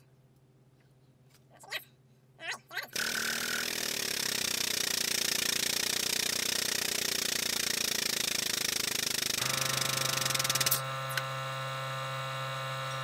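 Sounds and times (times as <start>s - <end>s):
hydraulic pump pulsing: 3.0s - 13.0s.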